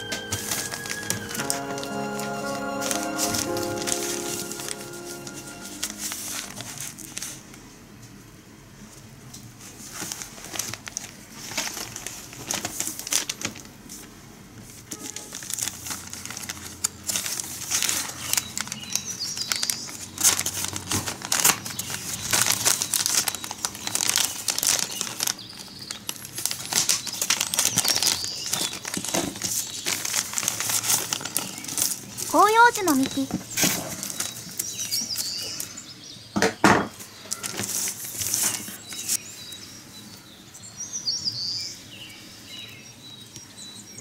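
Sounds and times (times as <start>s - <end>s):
plastic bag crinkling: 15.3s - 35.2s.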